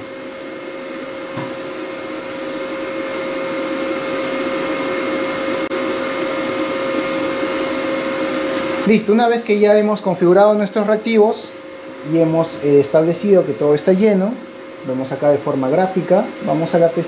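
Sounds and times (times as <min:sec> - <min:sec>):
whirring machine hum: 0:00.0 - 0:17.0.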